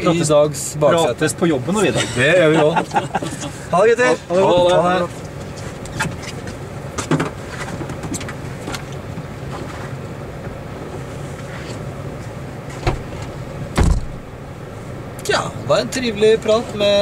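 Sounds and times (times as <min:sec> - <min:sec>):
car engine humming: 0:00.0 - 0:17.0
passengers rustling: 0:01.6 - 0:14.7
car door shutting: 0:12.7 - 0:14.3
sharp knock: 0:13.8 - 0:14.1.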